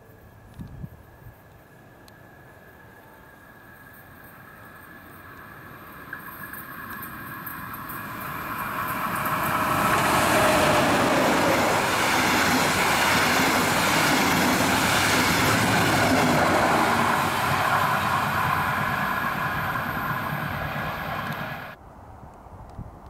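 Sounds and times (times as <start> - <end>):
train wheels rolling on rail: 3.5 - 21.8.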